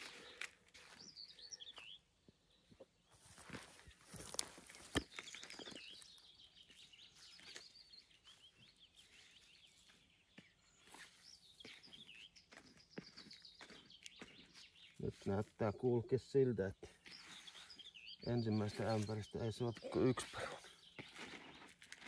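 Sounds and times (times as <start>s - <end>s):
faint bird song warbling: 0.0s - 21.9s
hands rustling soil in bucket: 3.1s - 15.8s, 16.8s - 22.0s.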